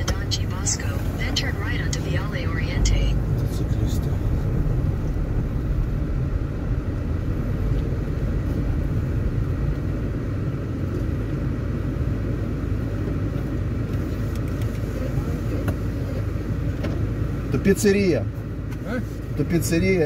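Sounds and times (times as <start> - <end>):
car driving heard from inside: 0.0 - 20.0.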